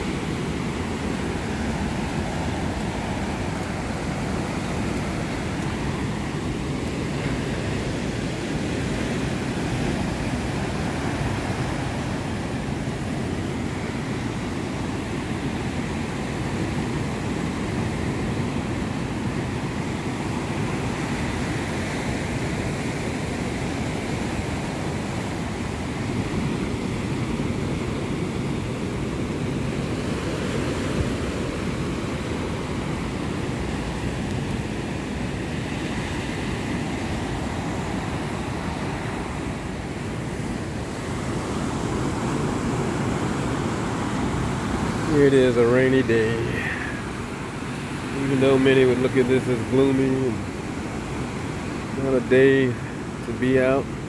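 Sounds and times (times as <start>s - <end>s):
ocean surf breaking on beach: 0.0s - 54.0s.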